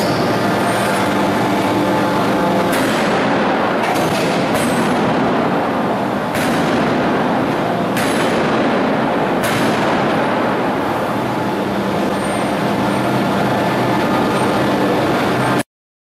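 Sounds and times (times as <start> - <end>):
loud machinery noise: 0.0 - 15.7.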